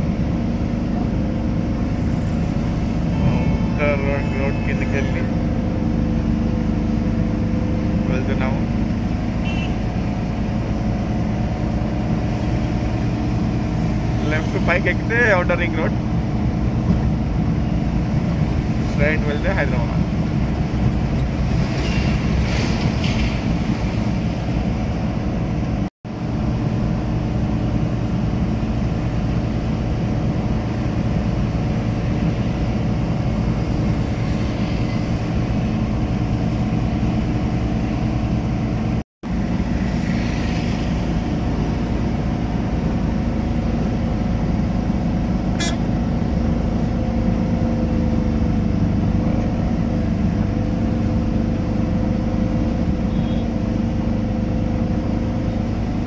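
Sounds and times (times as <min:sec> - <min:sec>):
car engine and tyre noise: 0:00.0 - 0:56.0.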